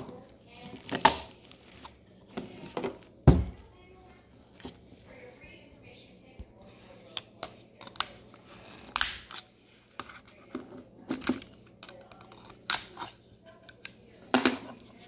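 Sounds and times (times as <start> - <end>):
sharp plastic clicks and cracks: 8.9 - 9.4.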